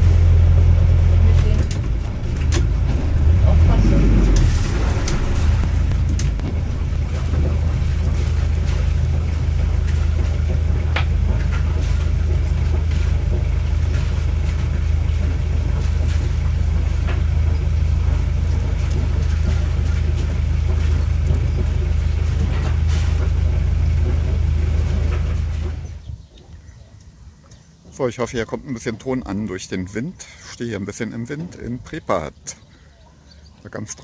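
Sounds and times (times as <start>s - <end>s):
motorboat engine drone: 0.0s - 28.0s.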